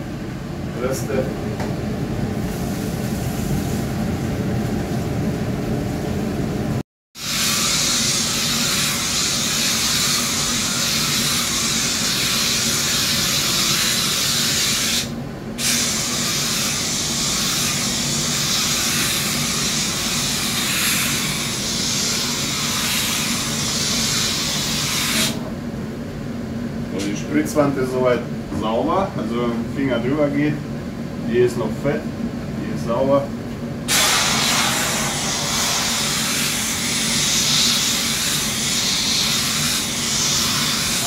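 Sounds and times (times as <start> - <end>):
steam cleaner hissing: 7.2 - 25.4, 33.9 - 41.0.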